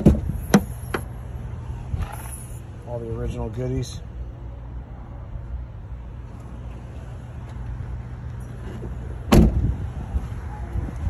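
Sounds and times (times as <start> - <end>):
car door slamming: 9.2 - 9.7.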